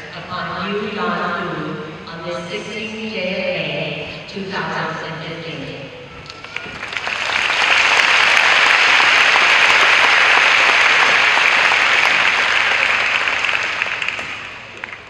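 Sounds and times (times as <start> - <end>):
audience applauding: 6.3 - 15.0.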